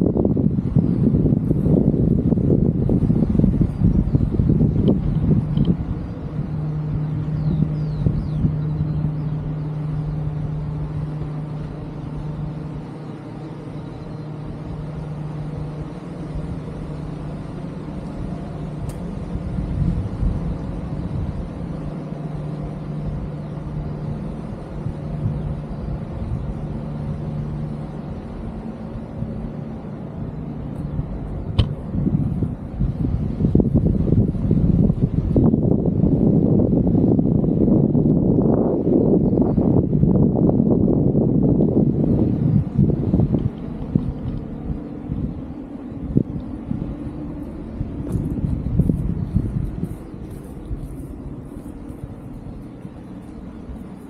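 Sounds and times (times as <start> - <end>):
engine drone: 0.0 - 54.0
low rumble: 0.0 - 54.0.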